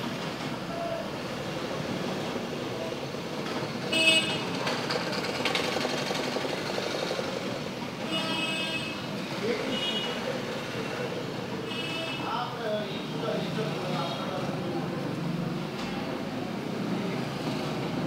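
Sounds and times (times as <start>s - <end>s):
background traffic noise: 0.0s - 18.0s
vehicle horn tooting: 3.9s - 4.5s.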